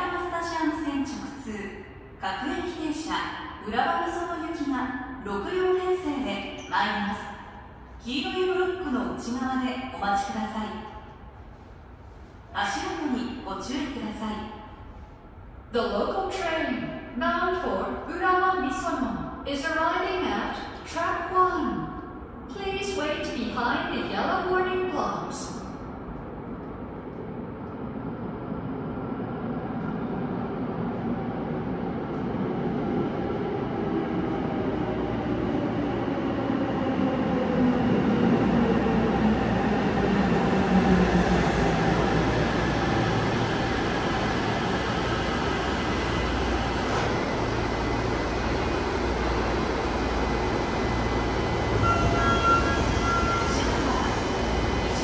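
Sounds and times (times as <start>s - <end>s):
train arriving and braking: 25.1s - 55.0s
short pulsing door chime: 51.7s - 53.9s.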